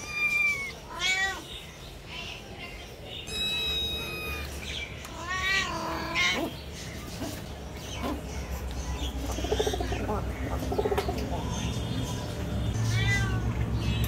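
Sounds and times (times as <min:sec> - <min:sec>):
kitten meowing: 0:00.0 - 0:01.4, 0:03.3 - 0:06.4.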